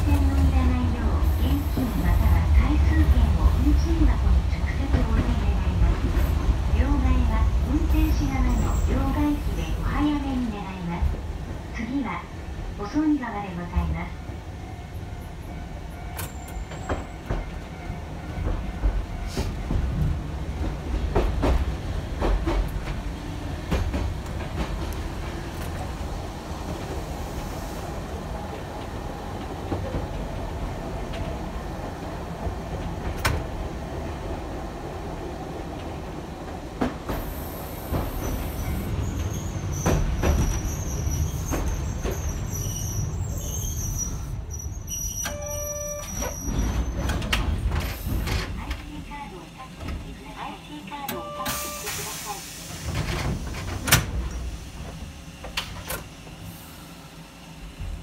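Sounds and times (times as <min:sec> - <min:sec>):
streetcar low rumble: 0:00.0 - 0:58.0
high wheel squeal: 0:38.5 - 0:47.0.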